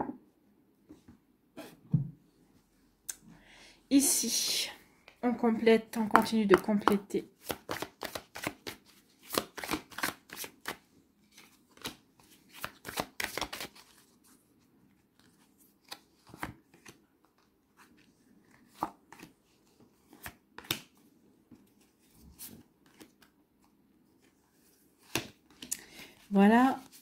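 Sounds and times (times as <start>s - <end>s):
cards being shuffled: 6.5s - 14.0s, 21.6s - 23.3s.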